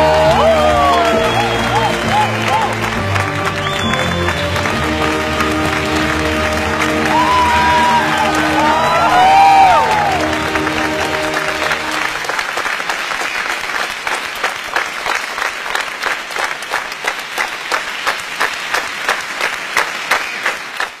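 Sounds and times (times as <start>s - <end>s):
music: 0.0s - 12.3s
audience applause: 0.0s - 21.0s.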